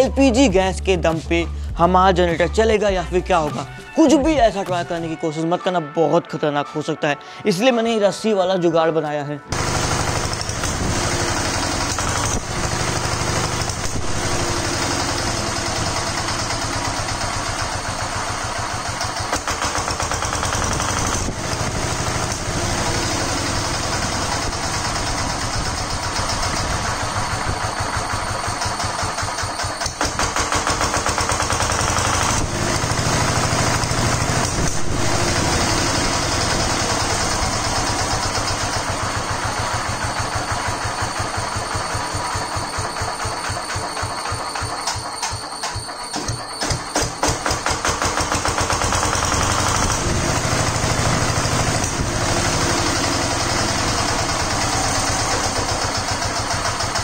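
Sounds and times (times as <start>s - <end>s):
diesel generator engine running: 0.0s - 5.1s, 9.5s - 57.0s.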